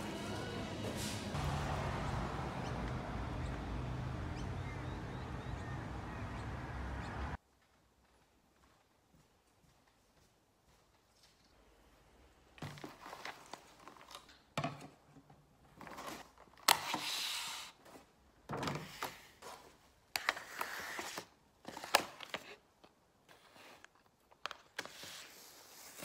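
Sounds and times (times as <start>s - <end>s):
plastic rustling and crinkling: 12.6s - 14.5s.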